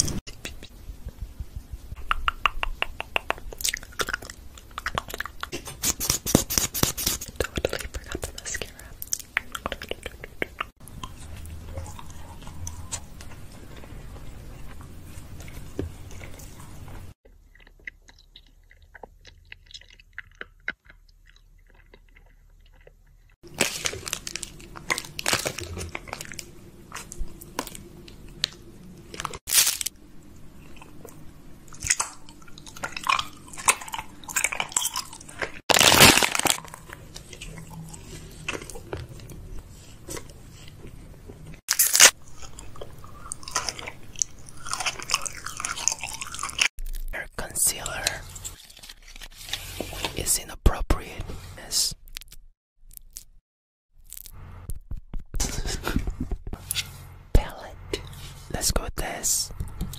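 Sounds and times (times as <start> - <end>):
mouth clicks: 2.0 - 4.2
crunchy food chewing: 3.2 - 50.2.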